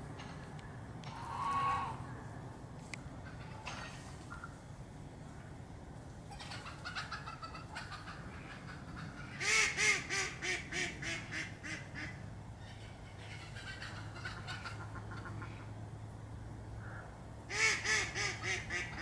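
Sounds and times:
waterfowl nasal calls: 1.1s - 2.1s.

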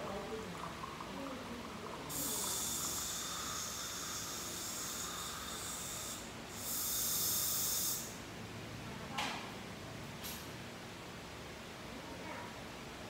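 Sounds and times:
dental equipment hissing: 2.0s - 8.3s.

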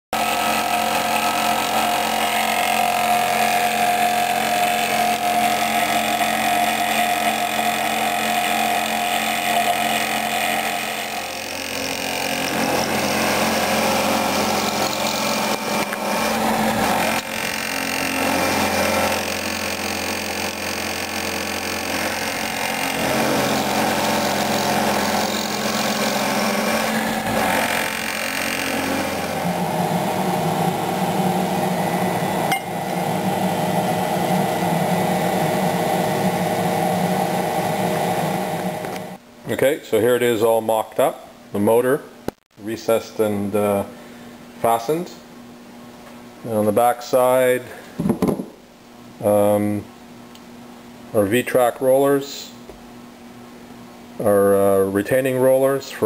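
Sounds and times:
milling machine cutting metal: 0.2s - 39.2s.

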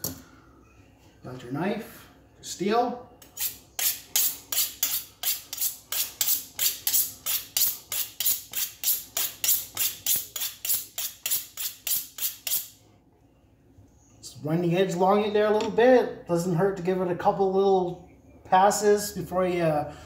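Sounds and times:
knife honing on steel: 3.2s - 12.7s.

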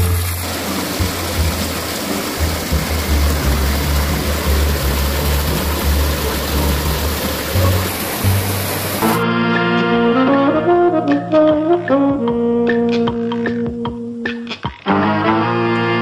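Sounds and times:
stream water rushing: 0.0s - 9.2s
background music with bass: 0.0s - 16.0s.

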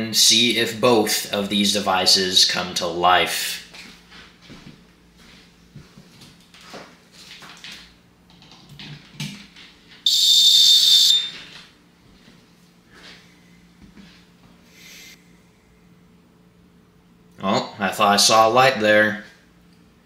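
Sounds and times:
shrill alarm buzzer beep: 10.0s - 11.6s.

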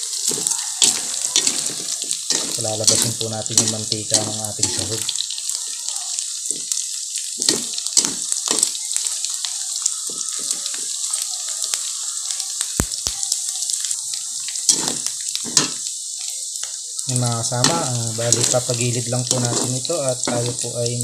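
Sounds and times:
meat sizzling in a wok: 0.0s - 21.0s
spatula scraping and knocking pan: 0.2s - 5.1s, 14.7s - 15.9s, 17.6s - 20.7s.

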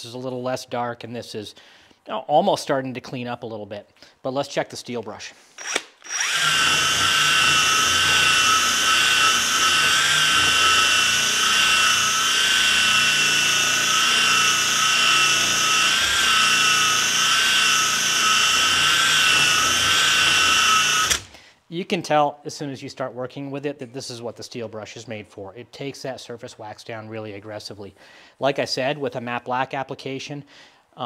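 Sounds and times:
cordless drill motor whine: 5.6s - 21.4s.

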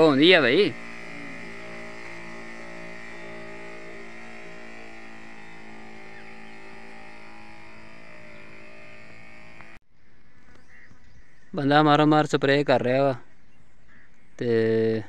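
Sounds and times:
sprayer pump humming: 0.0s - 9.8s
quiet outdoor background: 0.0s - 15.0s.

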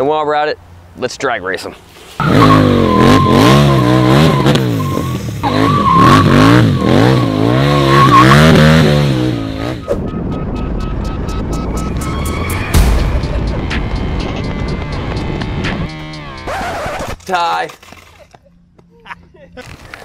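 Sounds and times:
high tyre squeal screech: 2.2s - 8.8s
race car engine revving: 2.2s - 17.2s.

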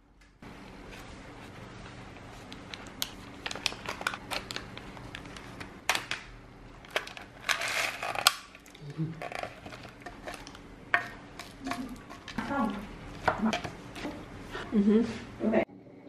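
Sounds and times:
foil lid peeling crinkling: 3.1s - 5.7s
cereal pieces rattling out of cup: 7.0s - 8.3s.

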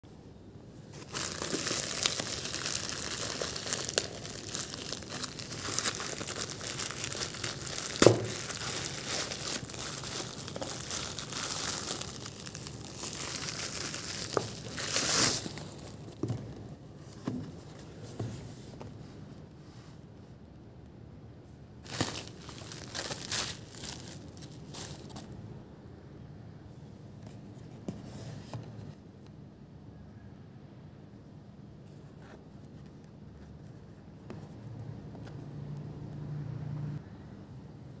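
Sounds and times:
plastic bag crinkling and tearing: 1.0s - 16.2s, 21.8s - 25.3s.

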